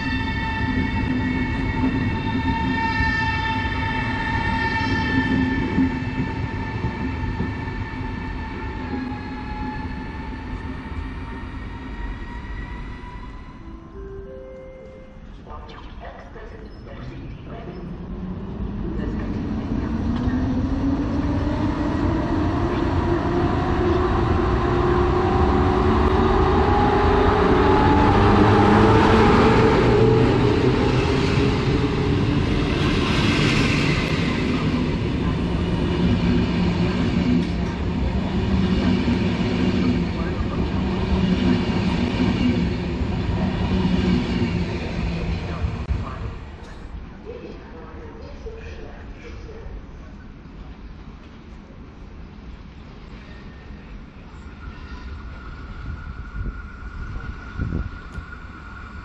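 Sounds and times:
train wheels rumbling and clattering: 0.0 - 13.4, 16.9 - 49.5
electric locomotive motor whine: 53.3 - 59.0.

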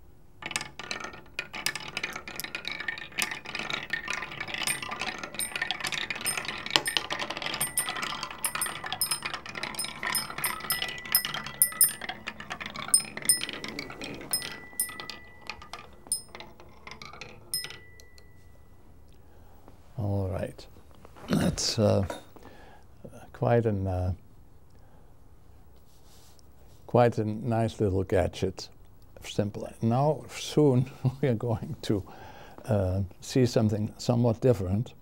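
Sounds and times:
marbles clattering down wooden ramps: 0.4 - 18.2
metal chime tube ringing: 4.6 - 16.4, 17.5 - 18.5.

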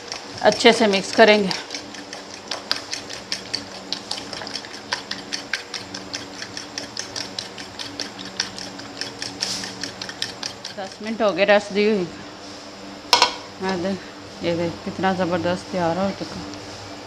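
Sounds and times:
fork whisking eggs in glass bowl: 0.0 - 11.3.

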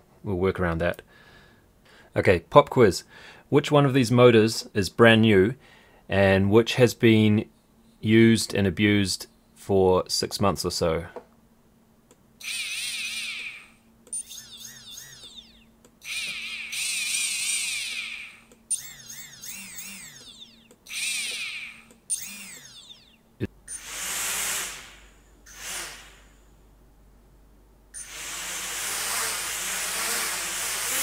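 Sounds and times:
small motors whining: 12.4 - 26.3, 28.0 - 31.0.

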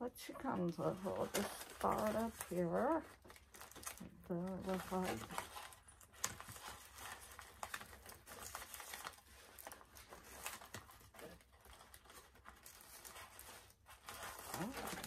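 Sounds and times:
toy packaging rustling and clicking: 0.5 - 15.0.

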